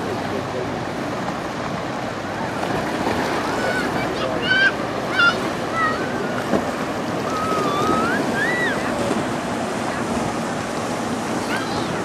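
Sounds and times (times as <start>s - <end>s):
water washing against rocky shore: 0.0s - 12.0s
high wavering cries: 7.2s - 9.0s.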